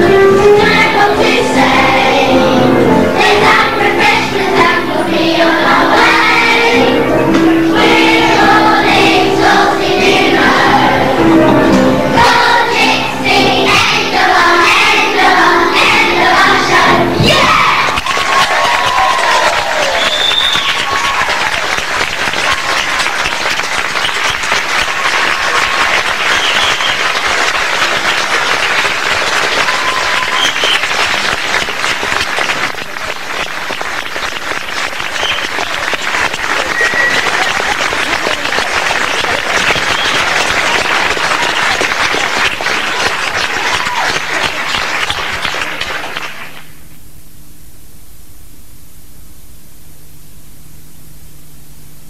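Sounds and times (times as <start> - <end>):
shouts from audience: 17.2 - 21.7, 29.5 - 30.7, 42.8 - 44.4
audience applauding: 17.3 - 46.8.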